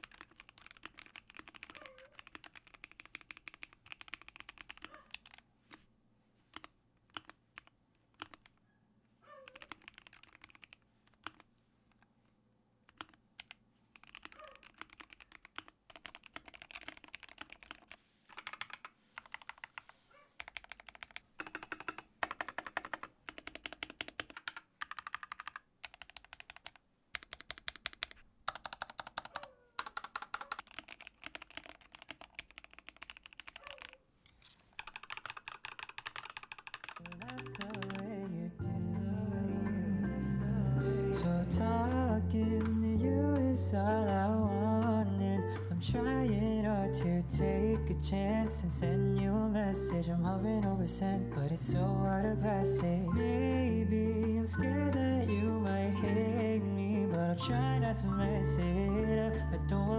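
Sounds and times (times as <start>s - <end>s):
mechanical keyboard typing: 0.0s - 5.4s, 6.5s - 8.6s, 9.4s - 11.5s, 12.9s - 34.0s, 34.7s - 38.4s.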